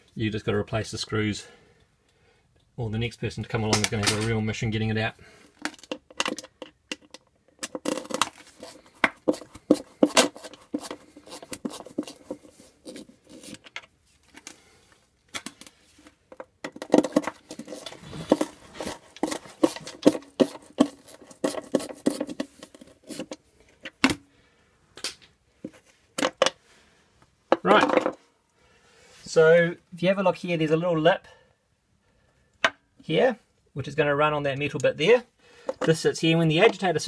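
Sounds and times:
screwdriver clicking and scraping: 5.7 - 14.6, 16.3 - 24.0.

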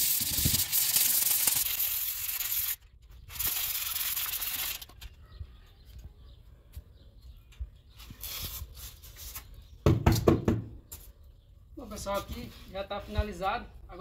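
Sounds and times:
sandpaper rubbing: 8.0 - 9.6.

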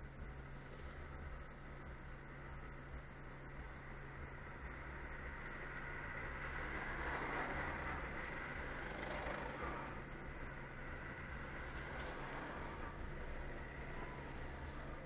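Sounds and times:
low steady hum: 0.0 - 15.0
car passing by: 5.6 - 15.0.

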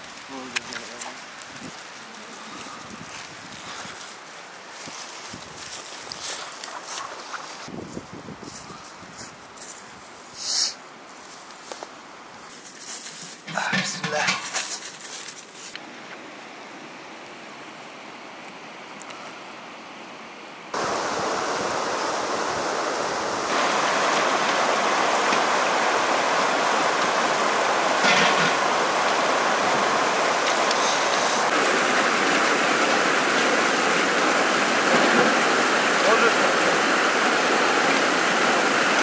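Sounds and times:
faint outdoor hiss: 0.0 - 39.0
river rushing over rocks: 20.7 - 39.0.

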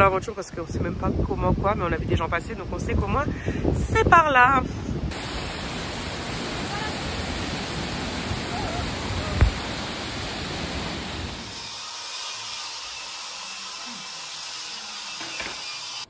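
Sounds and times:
river water rushing: 5.1 - 11.4.

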